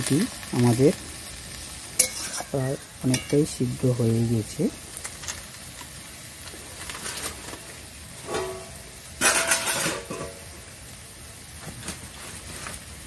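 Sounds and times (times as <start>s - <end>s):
greens sizzling in a pan: 0.0s - 13.0s
metal spatula scraping a pan: 2.0s - 3.6s, 6.8s - 10.5s.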